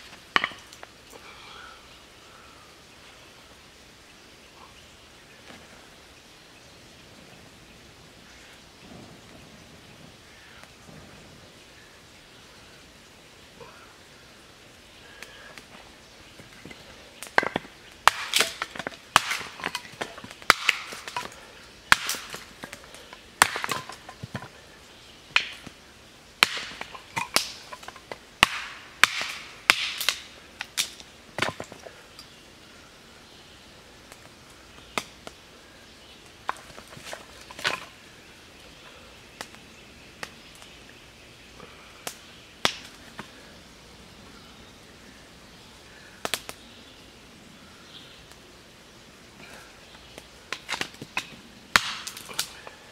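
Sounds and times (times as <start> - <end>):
hatchet chopping wood: 17.2 - 22.8, 23.4 - 24.5, 26.4 - 31.8, 50.6 - 52.4.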